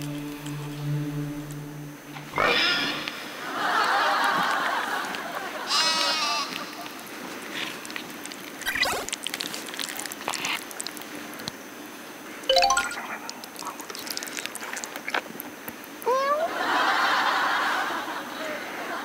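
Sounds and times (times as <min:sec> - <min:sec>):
noodles slurped and chewed: 0:06.5 - 0:11.6, 0:12.9 - 0:16.1
rising chime run: 0:12.5 - 0:13.2.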